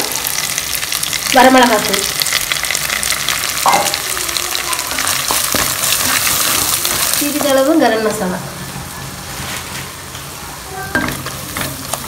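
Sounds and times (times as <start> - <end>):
food sizzling in hot oil: 0.0 - 12.0
utensil stirring in pot: 0.2 - 8.2.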